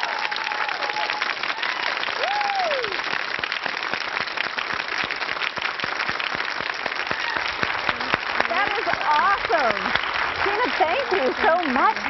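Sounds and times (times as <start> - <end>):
crowd whooping: 0.0 - 3.2, 6.9 - 8.2
audience applauding: 0.0 - 12.0.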